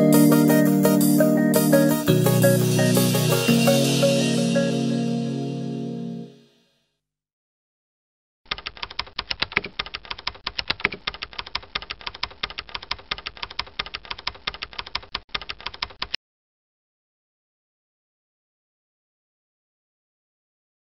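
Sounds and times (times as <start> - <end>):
computer keyboard typing: 8.5 - 16.2.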